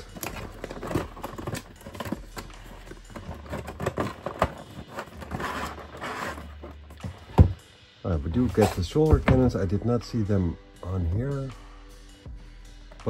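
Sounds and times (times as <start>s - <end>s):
cardboard sliding: 0.5s - 7.6s.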